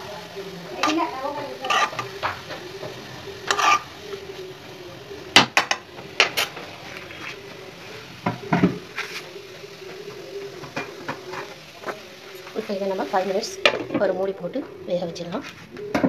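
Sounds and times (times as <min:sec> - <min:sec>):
spoon scraping metal pan: 0:00.8 - 0:03.9.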